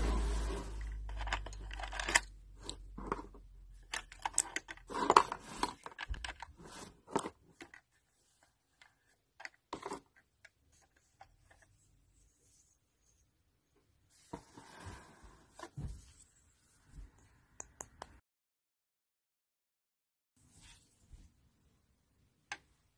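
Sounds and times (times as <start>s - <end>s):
plastic toys tapping and clicking: 0.9s - 6.5s.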